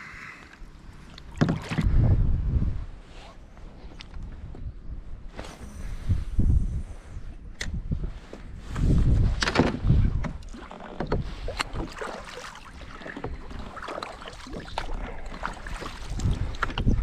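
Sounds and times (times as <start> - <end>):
water splashing: 1.0 - 1.9, 10.4 - 17.0
wind rumbling on microphone: 1.3 - 17.0.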